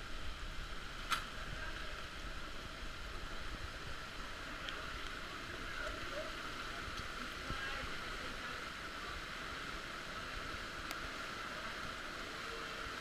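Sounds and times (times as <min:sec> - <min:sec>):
stream running water: 0:00.0 - 0:13.0
sharp click: 0:01.1 - 0:01.3.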